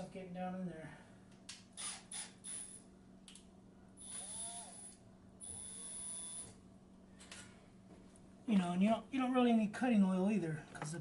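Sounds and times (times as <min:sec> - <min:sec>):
faint power drill whir: 0:01.8 - 0:02.8, 0:04.0 - 0:06.6.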